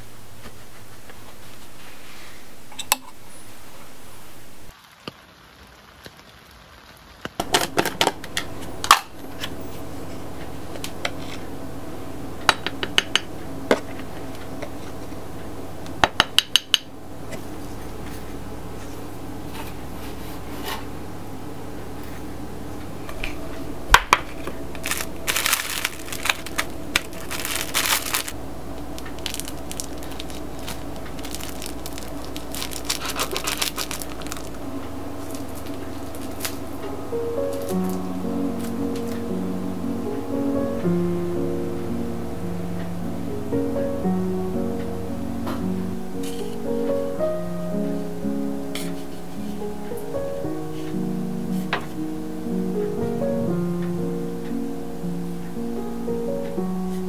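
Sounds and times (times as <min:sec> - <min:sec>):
steady low hum: 0:00.0 - 0:04.7, 0:07.4 - 0:57.0
scraping: 0:24.2 - 0:39.2.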